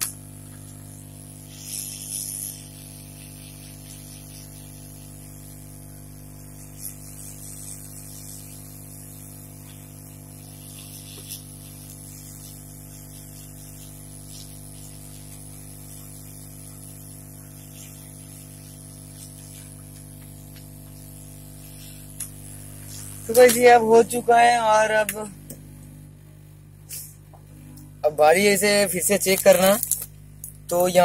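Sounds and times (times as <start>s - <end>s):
hot air gun hissing: 0.0s - 24.2s
low electrical hum: 0.0s - 31.0s.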